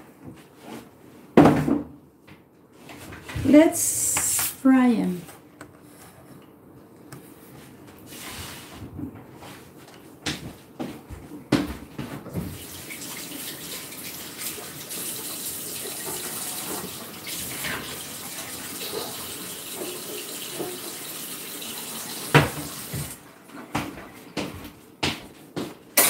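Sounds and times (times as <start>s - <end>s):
tap running into sink: 18.8s - 23.2s.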